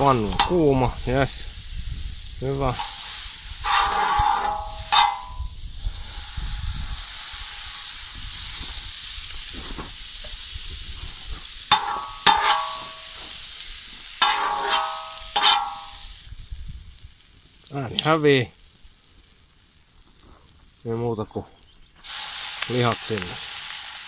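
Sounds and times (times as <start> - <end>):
griddle pan sizzling: 0.0 - 20.8, 21.8 - 24.0
metallic clanks: 3.6 - 5.5, 11.7 - 13.4, 14.2 - 16.0.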